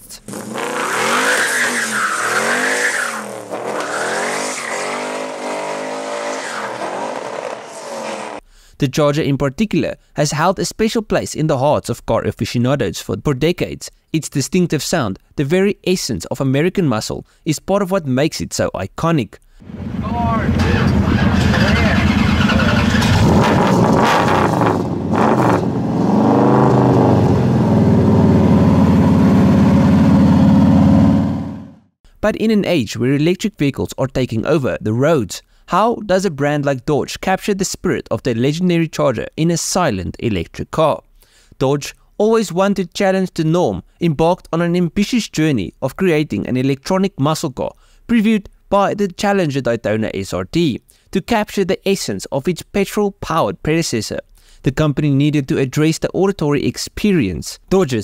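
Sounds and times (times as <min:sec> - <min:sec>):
car engine revving: 0:00.2 - 0:08.4, 0:19.6 - 0:31.9
tyres squealing: 0:00.3 - 0:08.3, 0:20.4 - 0:23.6.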